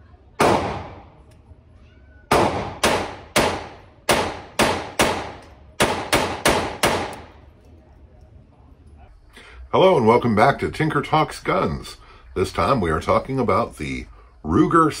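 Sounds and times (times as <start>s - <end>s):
pistol shots ringing indoors: 0.4s - 1.2s, 2.3s - 7.4s.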